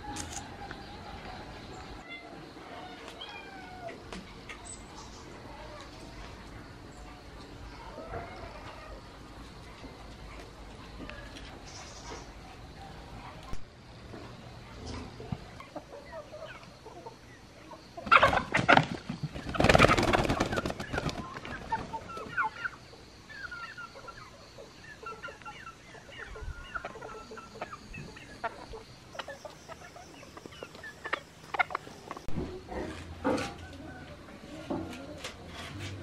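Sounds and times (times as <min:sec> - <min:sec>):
chickens clucking: 0:00.0 - 0:36.0
chicken squawking and flapping: 0:18.0 - 0:22.7.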